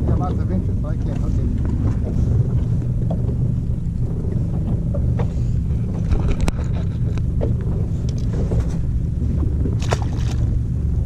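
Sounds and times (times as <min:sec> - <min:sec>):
boat low rumble: 0:00.0 - 0:11.0
sharp clicks and knocks: 0:04.6 - 0:08.8.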